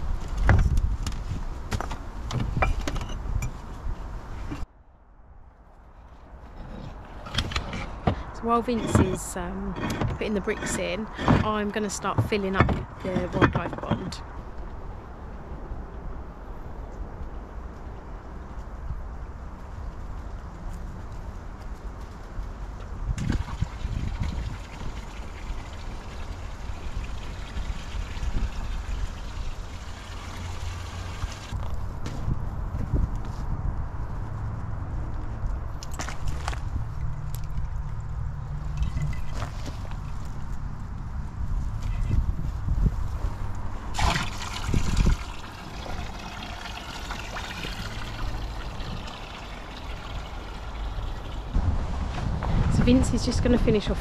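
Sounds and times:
water pouring into plastic tank: 0:23.2 - 0:31.5, 0:44.0 - 0:51.5.

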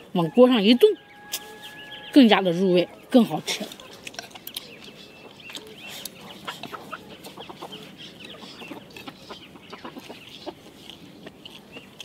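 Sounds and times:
chickens clucking: 0:00.0 - 0:12.0
chopsticks clicking against bowl: 0:03.7 - 0:06.8.

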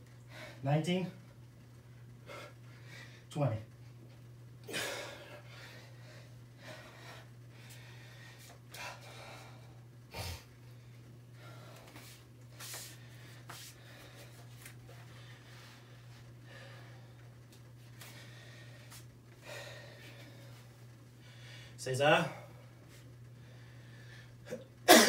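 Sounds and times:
steady low hum: 0:00.0 - 0:25.0
man breathing hard: 0:02.2 - 0:03.3, 0:04.6 - 0:12.2, 0:15.1 - 0:17.3, 0:18.0 - 0:21.8, 0:23.3 - 0:24.5.

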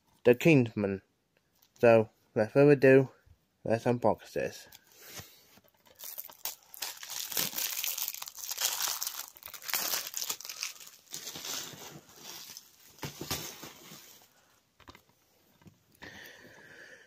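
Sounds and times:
plastic wrap crinkling: 0:05.6 - 0:14.3
plastic wrap tearing: 0:05.9 - 0:13.8.

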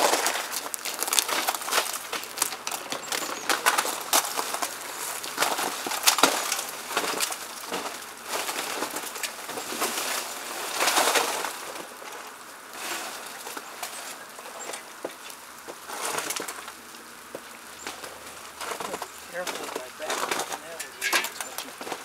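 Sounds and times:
meltwater dripping off ice: 0:00.0 - 0:10.2
footsteps on icy snow: 0:00.0 - 0:12.0.

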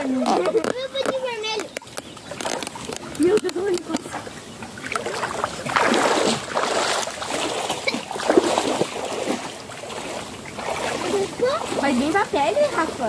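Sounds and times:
stream water splashing: 0:00.0 - 0:13.0.

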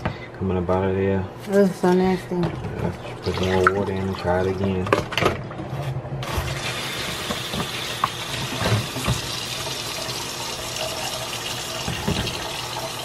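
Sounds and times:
tap water running into container: 0:02.6 - 0:04.9, 0:06.2 - 0:13.0.

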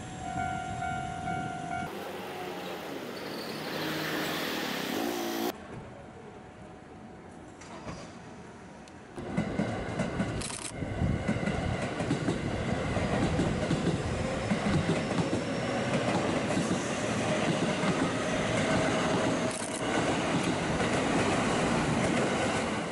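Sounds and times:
train wheels rumbling on rails: 0:09.2 - 0:22.9.

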